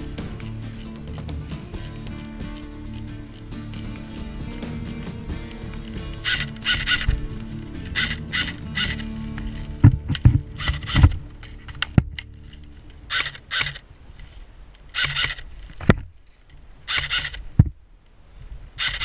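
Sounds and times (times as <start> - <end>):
sharp clicks: 4.6 - 13.9, 14.7 - 18.2, 18.8 - 19.0.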